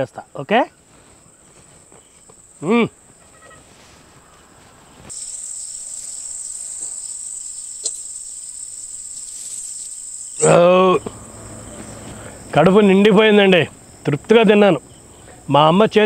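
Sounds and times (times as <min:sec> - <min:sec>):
insects chirring: 0:00.0 - 0:16.0.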